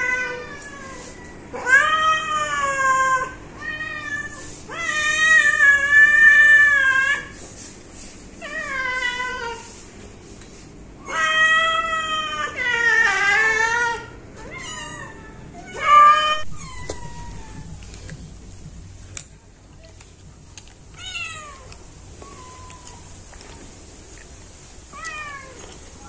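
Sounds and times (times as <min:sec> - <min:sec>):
cats meowing: 0:00.0 - 0:07.4, 0:08.4 - 0:09.7, 0:11.0 - 0:18.1, 0:20.9 - 0:23.7, 0:24.8 - 0:26.0.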